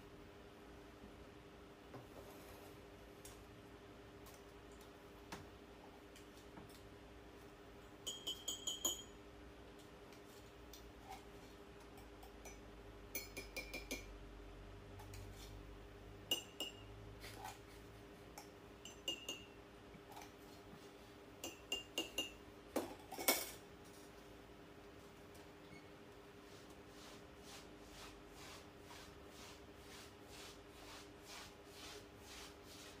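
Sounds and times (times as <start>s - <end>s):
cups and glasses clinking: 8.0s - 9.2s, 12.0s - 14.1s, 16.3s - 16.9s, 18.4s - 19.6s, 21.4s - 23.6s.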